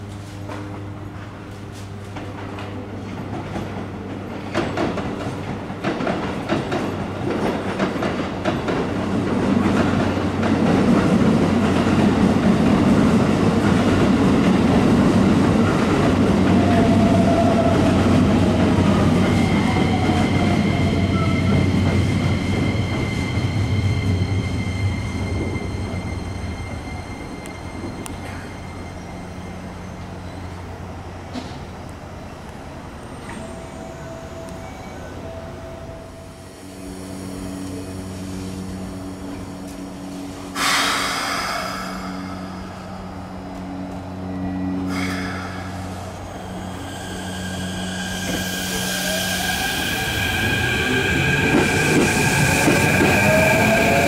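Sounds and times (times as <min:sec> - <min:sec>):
train rumble: 0:00.0 - 0:54.0
train wheels clicking over rail joints: 0:02.1 - 0:14.7.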